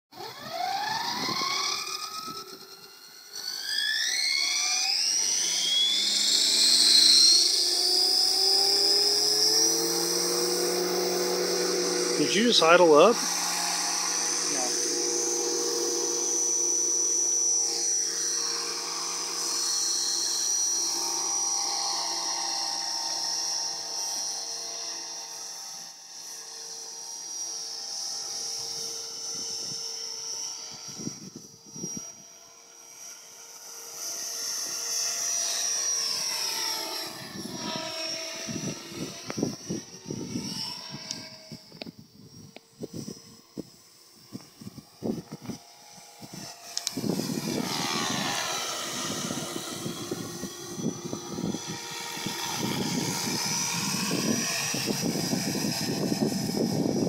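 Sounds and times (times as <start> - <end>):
rc helicopter whining: 0.1 - 57.0
rotor blade noise: 0.2 - 57.0.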